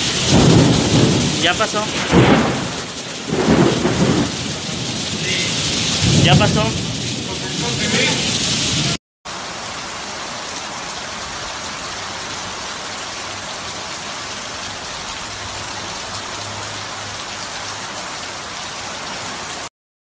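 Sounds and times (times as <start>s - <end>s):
heavy rain pouring: 0.0s - 19.7s.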